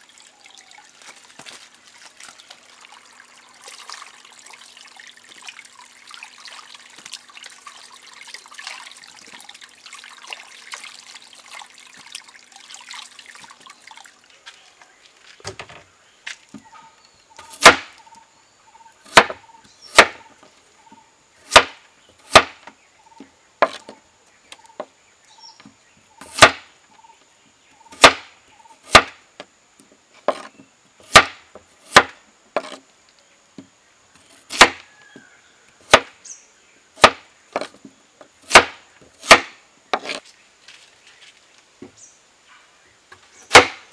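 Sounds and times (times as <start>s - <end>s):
water sloshing and trickling: 0.0s - 16.8s
knife chopping on wooden board: 17.6s - 17.9s, 19.1s - 20.2s, 21.5s - 22.6s, 26.2s - 26.6s, 28.0s - 28.2s, 28.9s - 29.1s, 31.1s - 32.8s, 34.5s - 34.8s, 37.0s - 37.7s, 38.5s - 40.2s, 43.5s - 43.8s.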